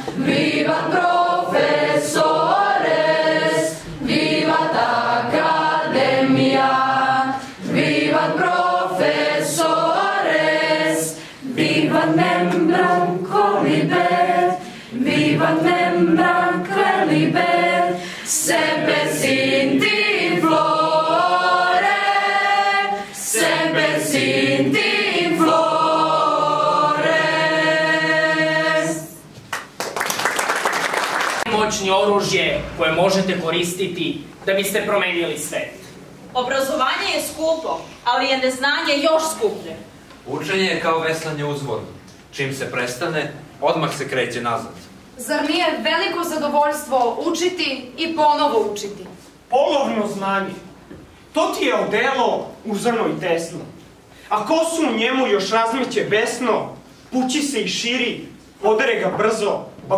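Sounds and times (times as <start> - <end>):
mixed choir singing a cappella: 0.0 - 29.4
singers breathing: 11.1 - 11.5, 14.6 - 15.1, 17.9 - 18.4.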